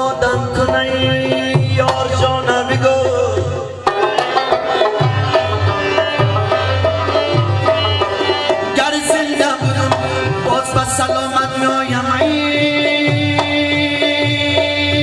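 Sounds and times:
plucked string melody: 0:00.0 - 0:15.0
tabla drumming: 0:00.0 - 0:15.0.

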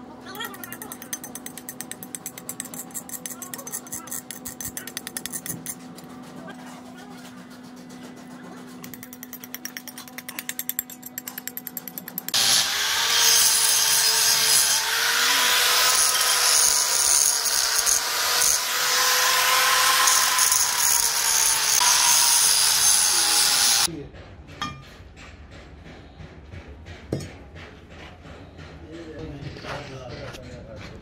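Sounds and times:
angle grinder grinding metal: 0:00.3 - 0:06.3, 0:08.7 - 0:23.9.

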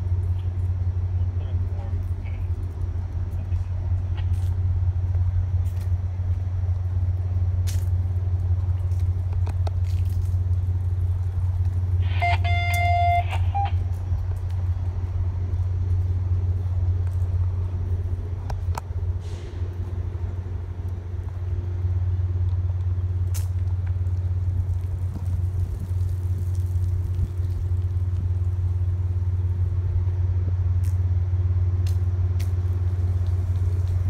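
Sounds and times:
diesel locomotive idling rumble: 0:00.0 - 0:34.0
brief high tone: 0:12.0 - 0:13.8.

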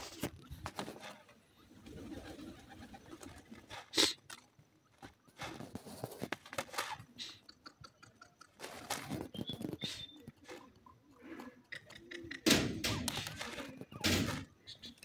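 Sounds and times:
birds giving soft low calls: 0:01.4 - 0:15.0
sharp clicks and taps: 0:10.2 - 0:13.5.

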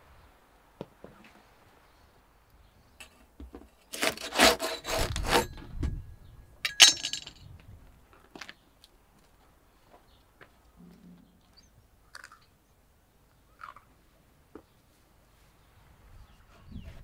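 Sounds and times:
wire hook scraping bread off clay: 0:03.8 - 0:05.7.

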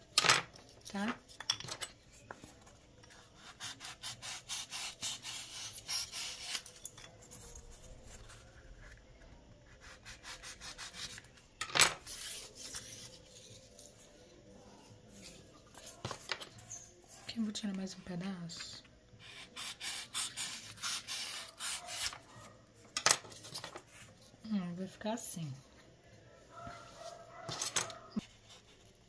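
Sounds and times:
blade sawing styrofoam: 0:03.4 - 0:06.7, 0:19.2 - 0:22.2
blade scraping styrofoam: 0:03.4 - 0:07.4, 0:19.2 - 0:22.2.

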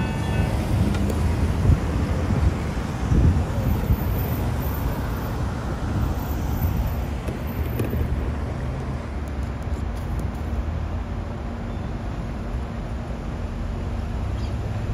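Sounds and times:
wind buffeting microphone: 0:00.0 - 0:09.0
road traffic rumble: 0:00.0 - 0:14.9.

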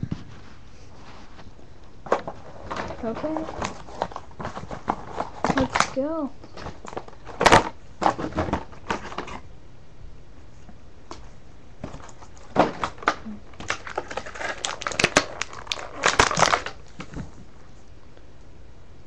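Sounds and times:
plastic packaging clicks and crackles: 0:02.1 - 0:09.4, 0:11.8 - 0:17.4.

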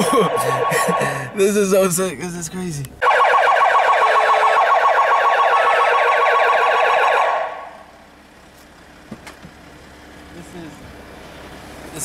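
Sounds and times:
police siren warbling: 0:00.0 - 0:01.4, 0:03.0 - 0:07.9.

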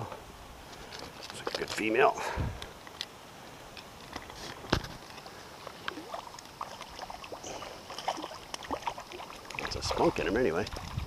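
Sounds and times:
shallow water splashing: 0:04.2 - 0:11.0
water dripping: 0:05.1 - 0:11.0.

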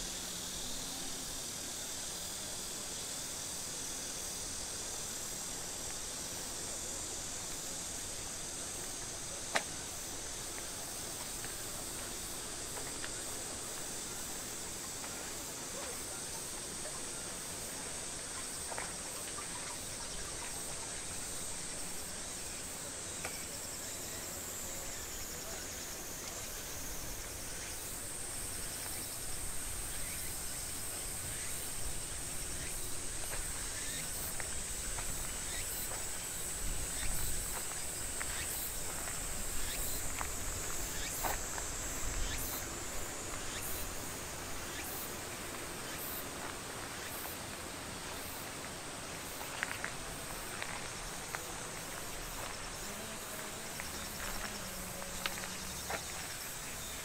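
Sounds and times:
insects droning: 0:00.0 - 0:57.0
footsteps on stone path: 0:08.9 - 0:16.0, 0:33.1 - 0:57.0.

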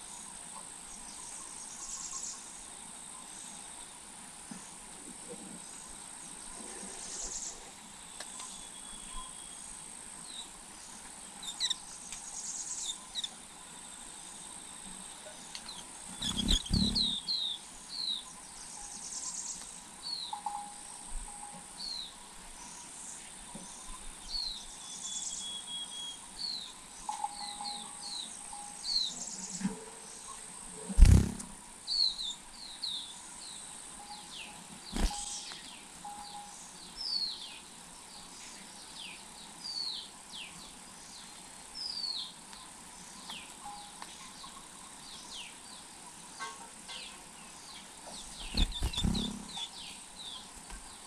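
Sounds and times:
birds chirping: 0:10.3 - 0:20.6, 0:23.2 - 0:42.4, 0:43.1 - 0:51.0
insect buzz: 0:15.7 - 0:17.5, 0:30.8 - 0:32.8, 0:34.8 - 0:35.6, 0:48.3 - 0:50.4.

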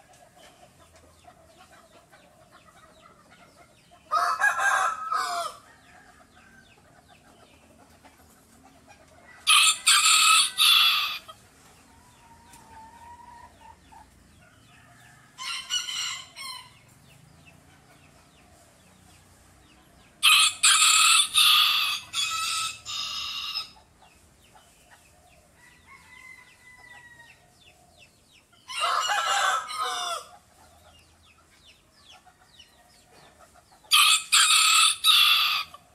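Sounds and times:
rooster crowing: 0:04.1 - 0:06.6, 0:09.4 - 0:11.3, 0:20.2 - 0:23.8, 0:25.6 - 0:27.4, 0:28.7 - 0:30.3, 0:33.9 - 0:35.8.

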